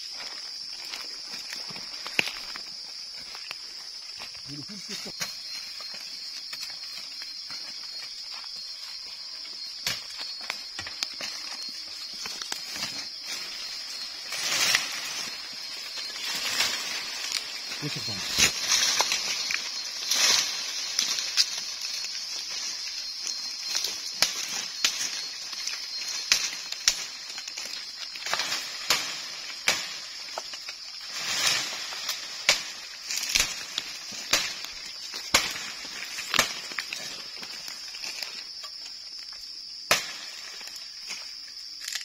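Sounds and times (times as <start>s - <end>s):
leaves rustling: 0.0s - 42.0s
stems and branches cracking: 0.8s - 2.6s, 9.8s - 39.3s, 41.8s - 42.0s.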